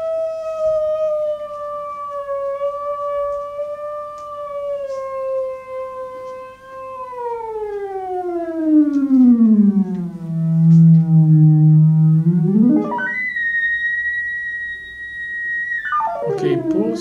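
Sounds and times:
synthesized electronic tone: 9.6 - 17.0.

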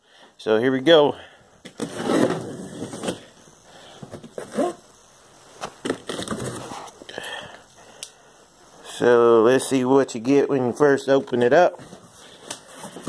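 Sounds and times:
packing tape rustling: 5.6 - 7.1.

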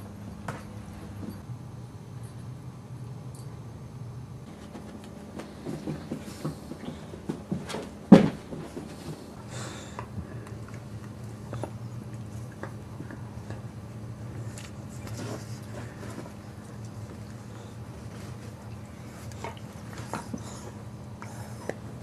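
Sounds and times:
steady low hum: 0.0 - 22.0
dogs scuffling on floor: 4.5 - 9.4.

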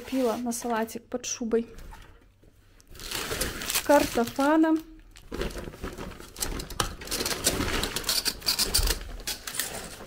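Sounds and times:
shopping bag rustling: 2.9 - 8.2.

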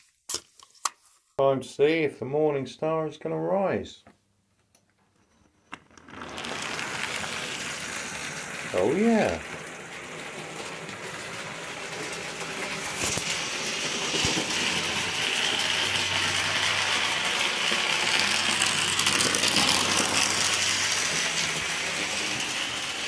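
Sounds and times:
model train motor whirring: 5.9 - 23.0.

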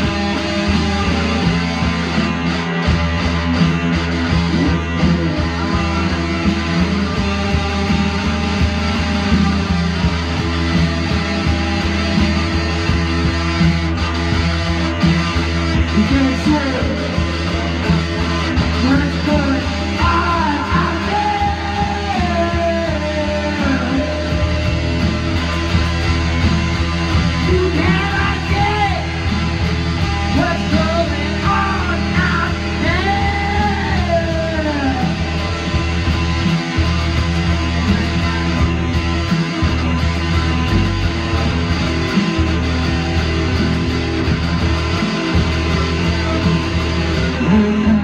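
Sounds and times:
rock band on electric guitars: 0.0 - 48.0
sliding wailing guitar lines: 0.0 - 48.0
low droning bass note: 22.1 - 48.0.

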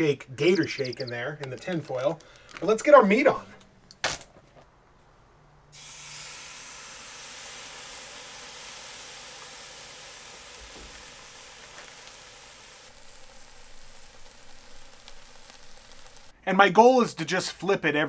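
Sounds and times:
steak sizzling on grill: 5.8 - 16.3.

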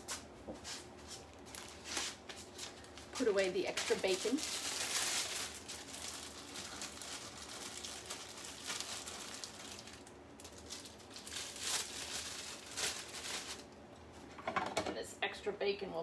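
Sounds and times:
plastic bag crinkling: 1.3 - 14.0.

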